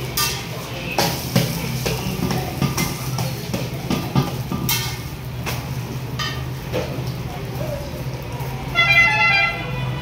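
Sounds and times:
metal spatula clanking on griddle: 0:00.0 - 0:07.1.

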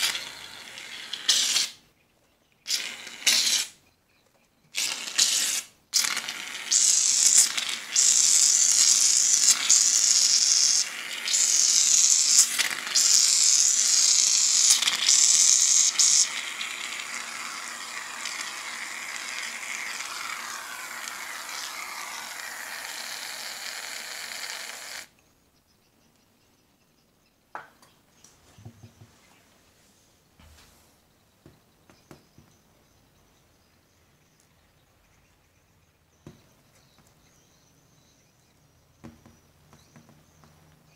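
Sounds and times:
aerosol can spraying: 0:00.0 - 0:01.8, 0:02.7 - 0:03.8, 0:04.8 - 0:25.1.

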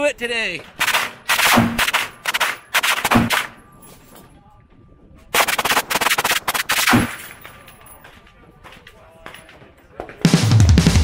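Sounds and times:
automatic rifle firing bursts: 0:00.8 - 0:03.6.

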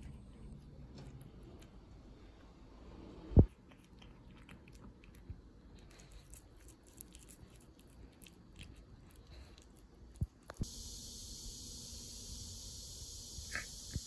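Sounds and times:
cat chewing and licking: 0:00.0 - 0:02.5, 0:03.4 - 0:10.6.

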